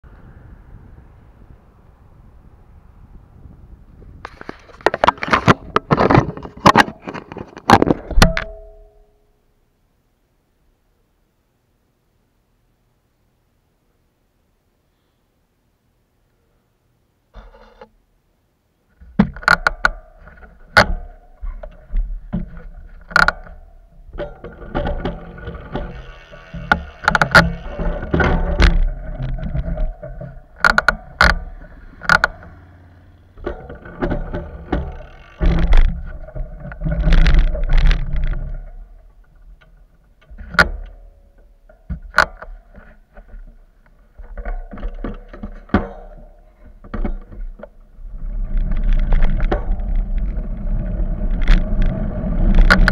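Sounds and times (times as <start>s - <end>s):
sharp clicks and knocks: 4.2s - 9.1s, 18.9s - 52.9s.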